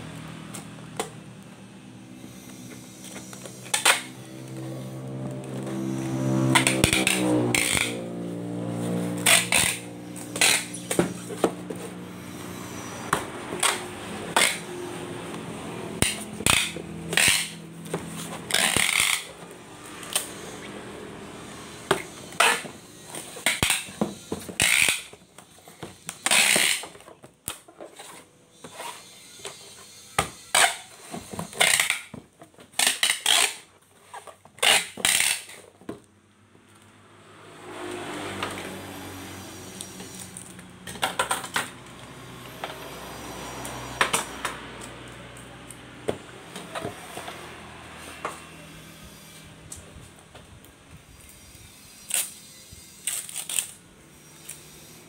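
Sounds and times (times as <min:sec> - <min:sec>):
packing tape rasping off dispenser: 0:02.2 - 0:15.3, 0:15.9 - 0:20.8, 0:21.8 - 0:35.8, 0:51.2 - 0:54.9
tape dispenser clacks and taps: 0:05.4 - 0:08.0, 0:09.1 - 0:11.9, 0:13.1 - 0:15.4, 0:16.0 - 0:19.3, 0:21.8 - 0:28.2, 0:30.2 - 0:36.0, 0:53.0 - 0:53.8.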